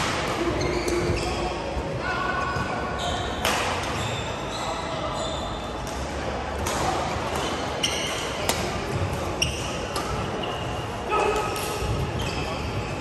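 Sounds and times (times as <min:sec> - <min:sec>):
sneakers squeaking on court: 0:02.4 - 0:05.7, 0:12.2 - 0:13.0.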